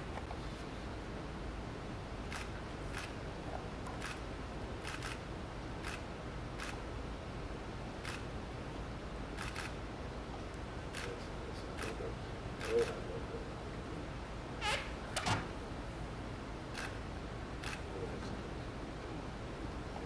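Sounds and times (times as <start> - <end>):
low room hum: 0.0 - 20.0.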